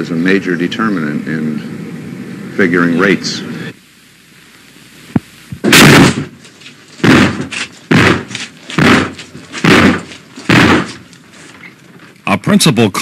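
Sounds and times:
heavy pounding on door: 7.0 - 11.0.

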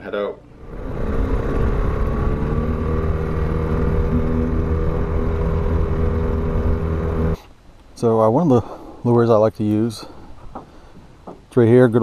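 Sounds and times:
boat motor running: 0.5 - 7.4.

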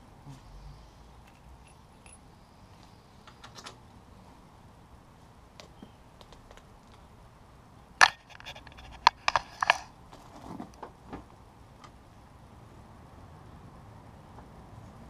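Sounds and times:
metallic clicks and clinks: 1.2 - 2.2.

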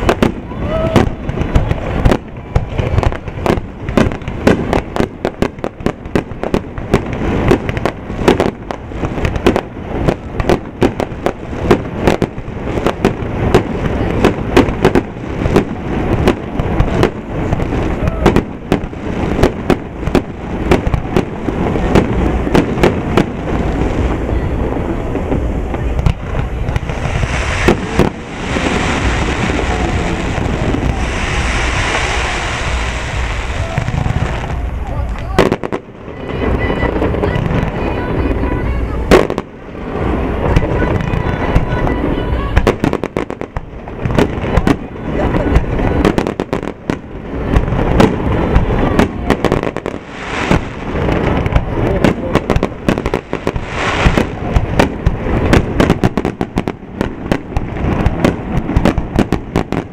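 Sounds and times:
steady hiss: 23.6 - 36.1, 49.8 - 51.9, 52.7 - 56.0
firework shells bursting: 25.2 - 36.0.

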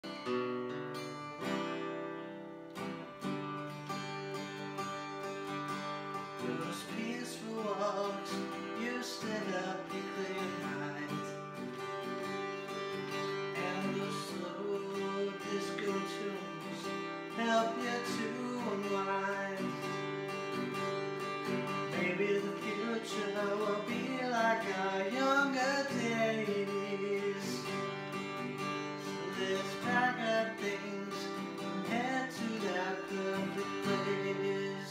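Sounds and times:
acoustic guitar strumming: 0.0 - 34.9
man singing: 6.2 - 12.0, 12.8 - 20.5, 21.3 - 34.9.

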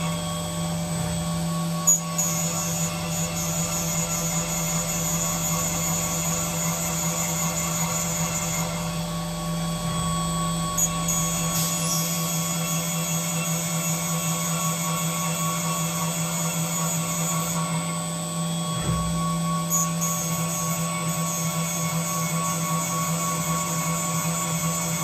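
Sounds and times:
milling machine spindle whine: 0.0 - 25.0.

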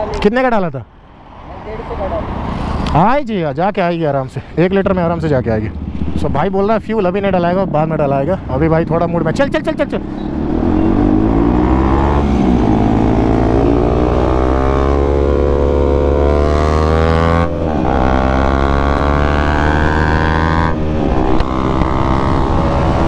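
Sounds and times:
motorcycle engine accelerating: 4.8 - 23.0.

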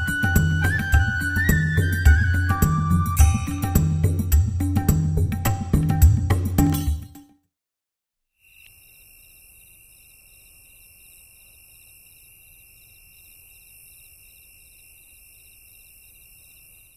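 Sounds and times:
crickets chirring: 8.4 - 16.9.

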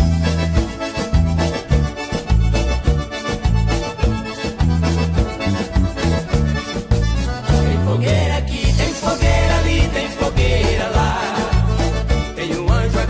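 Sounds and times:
accordion: 0.0 - 13.0
bass notes: 0.0 - 13.0
drum beat: 8.7 - 13.0.

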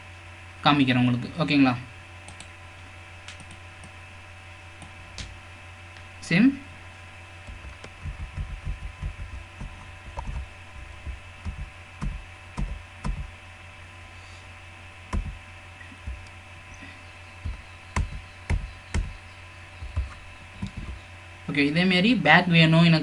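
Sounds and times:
electrical hum: 0.0 - 23.0
computer mouse clicking: 2.3 - 2.5, 3.2 - 3.9.

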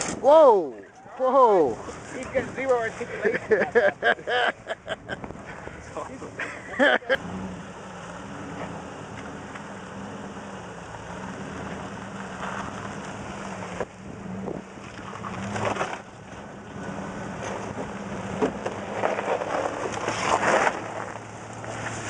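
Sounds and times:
engine running at low revs: 4.8 - 22.0
rough rushing noise: 7.2 - 22.0.

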